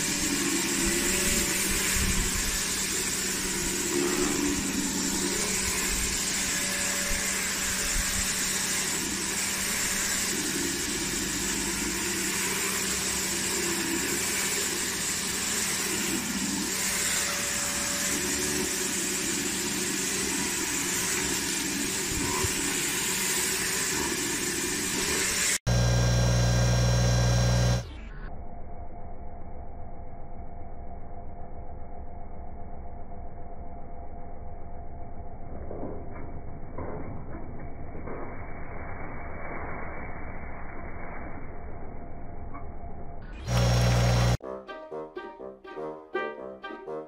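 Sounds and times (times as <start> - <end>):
pressure washer motor hum: 24.2 - 27.9, 43.4 - 44.4
steady low hum: 25.7 - 35.4, 43.4 - 44.4.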